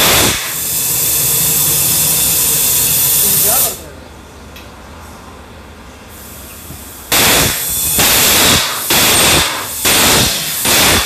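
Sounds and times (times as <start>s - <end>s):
compressed air blasts: 0.0s - 3.8s, 6.1s - 11.0s.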